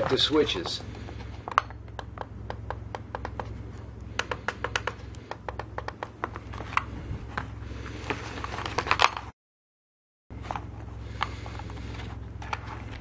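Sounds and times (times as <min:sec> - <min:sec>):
steady low hum: 0:00.0 - 0:09.3, 0:10.3 - 0:13.0
plastic housing knocking: 0:01.5 - 0:03.6, 0:04.2 - 0:06.4.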